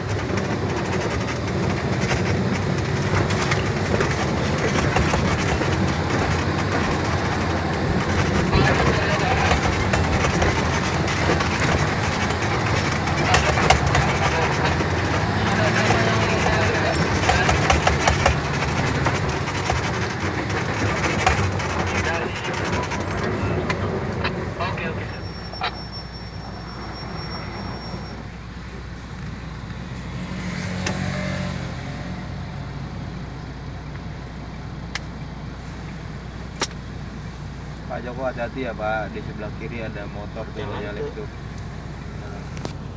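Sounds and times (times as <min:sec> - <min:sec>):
sharp knocks: 0:00.0 - 0:23.8
rattling and clattering: 0:00.0 - 0:25.4
vehicle rumble on gravel road: 0:00.0 - 0:42.9.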